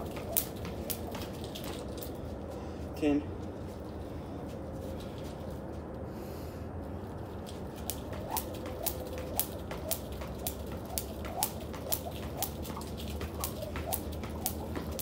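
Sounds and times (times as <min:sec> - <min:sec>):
jump rope slapping concrete: 0:00.0 - 0:02.2, 0:07.3 - 0:15.0.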